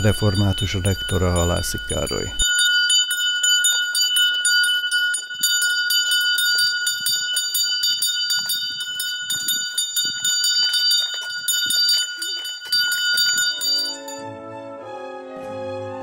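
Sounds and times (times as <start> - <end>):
school bell ringing rapidly: 0.0 - 14.3.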